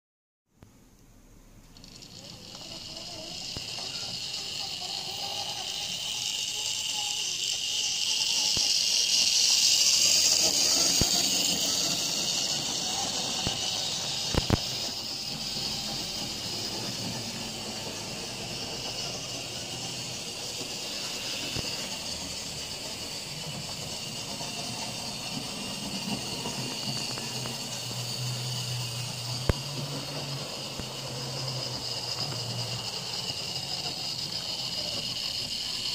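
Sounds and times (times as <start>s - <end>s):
model locomotive motor whine: 1.6s - 35.9s.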